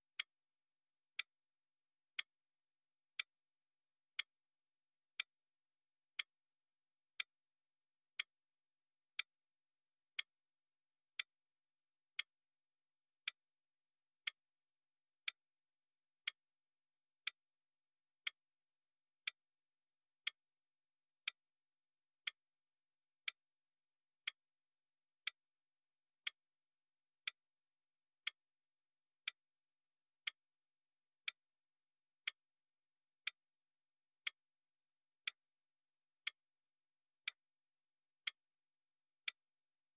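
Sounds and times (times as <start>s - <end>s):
clock ticking: 13.2s - 13.4s.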